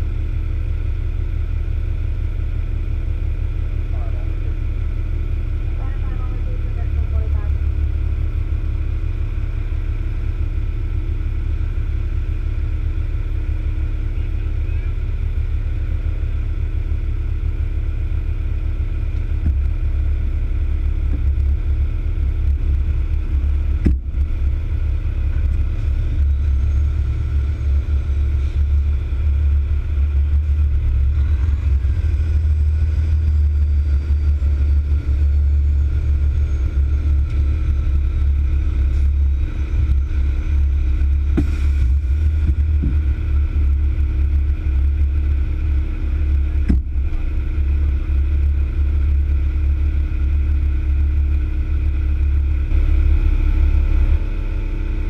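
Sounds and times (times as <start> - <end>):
diesel truck engine idling: 0.0 - 55.0.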